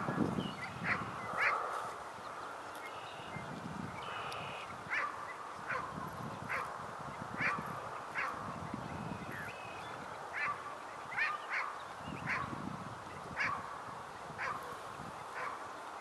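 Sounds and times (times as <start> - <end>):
steady outdoor hiss: 0.0 - 16.0.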